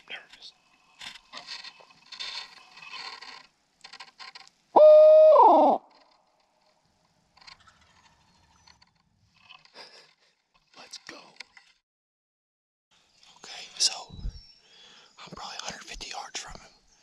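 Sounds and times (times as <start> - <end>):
owl call hoot: 4.8 - 5.9.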